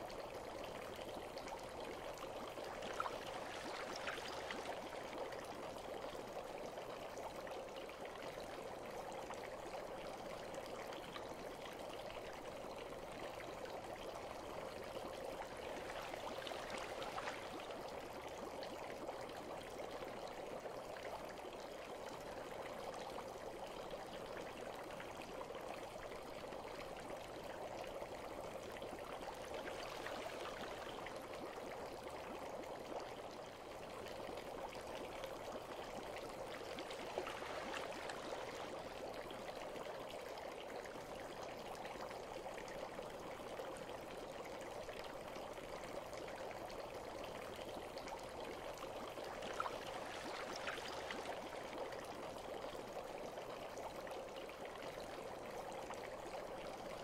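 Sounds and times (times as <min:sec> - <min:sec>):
faint water splashes: 0:00.0 - 0:57.0
bath water trickling: 0:35.3 - 0:39.8, 0:48.5 - 0:52.4.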